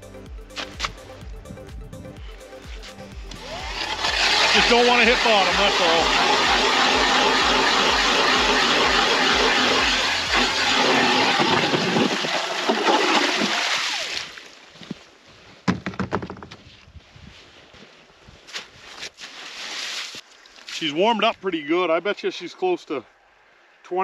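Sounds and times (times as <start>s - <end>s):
power ice auger drilling: 3.3s - 14.2s.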